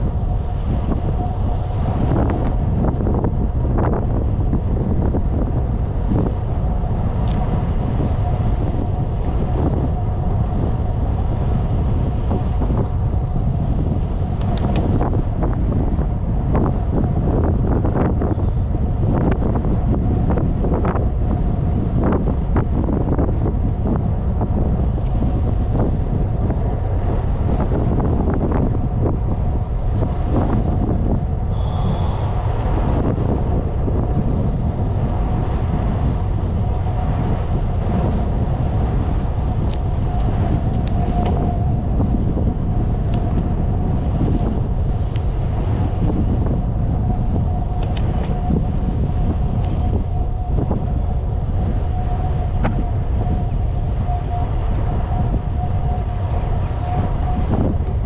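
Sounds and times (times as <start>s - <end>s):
thin steady whine: 0.0s - 58.0s
wind buffeting microphone: 0.0s - 58.0s
bicycle ticks and rattles: 7.0s - 32.2s, 33.0s - 51.8s.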